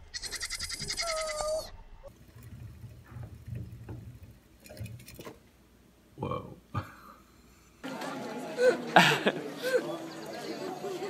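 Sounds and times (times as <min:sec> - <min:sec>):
goat kid bleating: 0:00.1 - 0:01.7.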